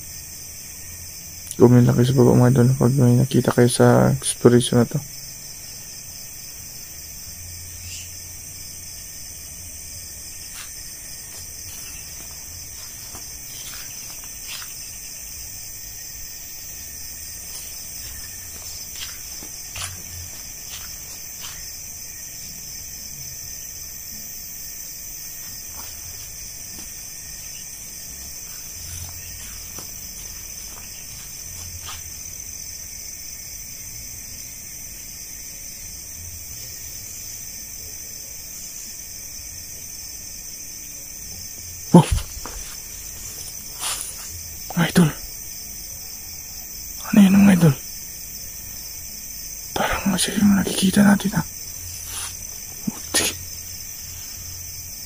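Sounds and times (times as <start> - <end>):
crickets and night insects chirping: 0.0 - 55.0
footsteps on dry leaves: 10.4 - 15.0, 17.4 - 21.8, 25.4 - 27.2, 28.4 - 32.3, 42.1 - 44.4, 51.9 - 53.4.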